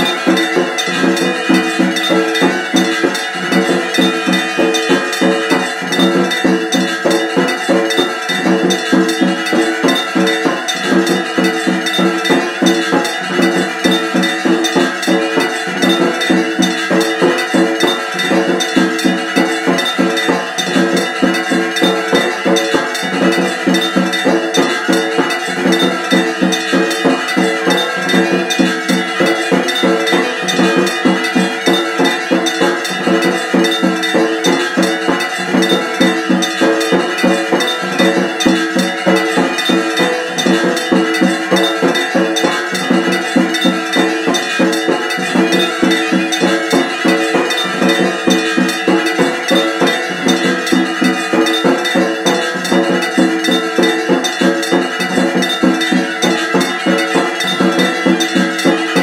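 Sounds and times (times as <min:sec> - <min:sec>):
metal bells clanging: 0:00.0 - 0:59.0.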